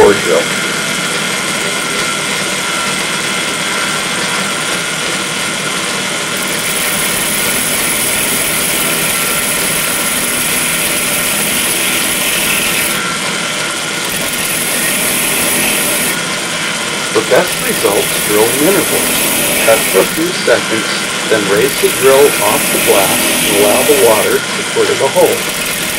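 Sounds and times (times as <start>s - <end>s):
drill press motor running: 0.0s - 25.9s
high hiss of drilling glass: 6.4s - 13.0s, 14.2s - 16.2s, 17.4s - 24.4s.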